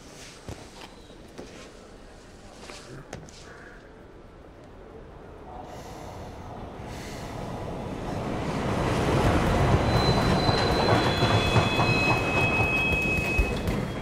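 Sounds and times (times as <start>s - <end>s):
subway train rumble: 3.9s - 14.0s.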